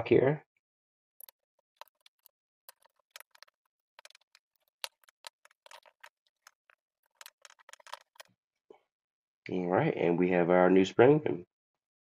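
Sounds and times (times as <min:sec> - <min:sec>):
small metallic clicks and scrapes: 0:01.2 - 0:08.3.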